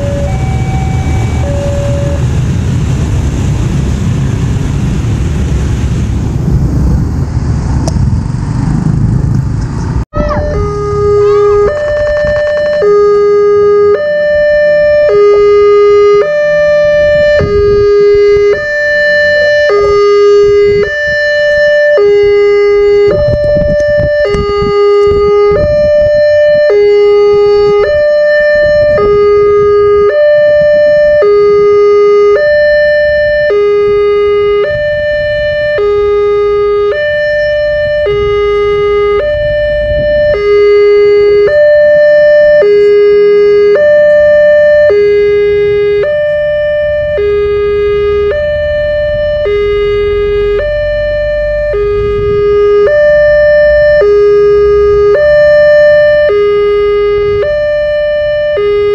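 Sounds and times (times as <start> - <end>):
two-tone crossing alarm: 0.0 - 2.4, 10.1 - 58.9
low rumble: 0.0 - 14.6.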